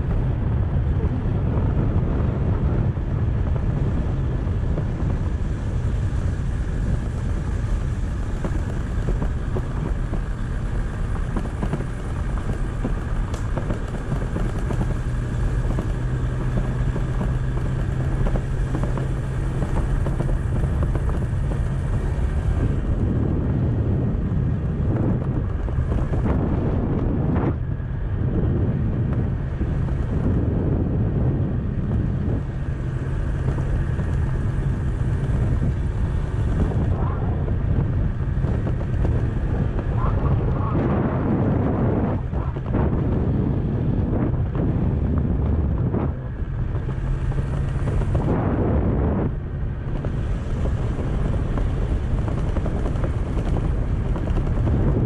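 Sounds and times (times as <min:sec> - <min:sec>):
motorcycle engine running: 0:00.0 - 0:55.0
road noise: 0:00.0 - 0:55.0
wind noise: 0:00.0 - 0:55.0.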